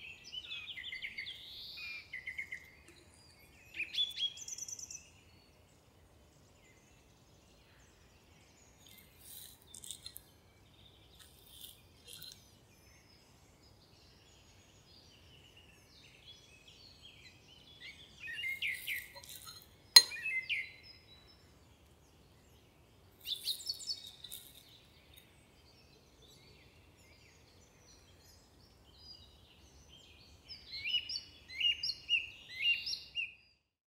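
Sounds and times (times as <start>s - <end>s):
birds chirping: 0.0s - 6.0s, 6.6s - 33.3s
metal spoon clinking on plate: 18.8s - 20.4s.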